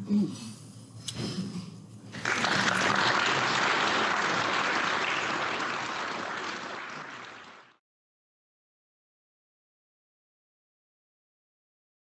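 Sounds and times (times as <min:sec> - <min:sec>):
audience applauding: 0:02.1 - 0:07.8.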